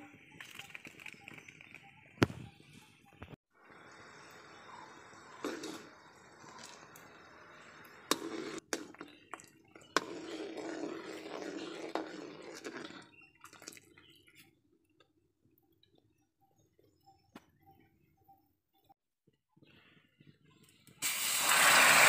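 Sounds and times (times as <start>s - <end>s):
water hissing on hot sugar: 21.0s - 22.0s.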